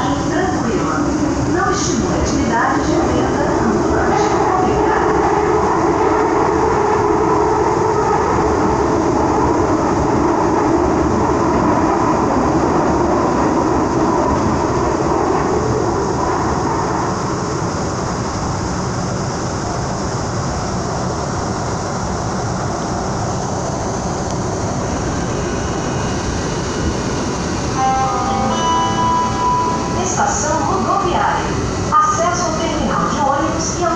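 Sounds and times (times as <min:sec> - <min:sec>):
train wheels rumbling on rail: 0:00.0 - 0:33.9
steady tones: 0:24.4 - 0:33.6.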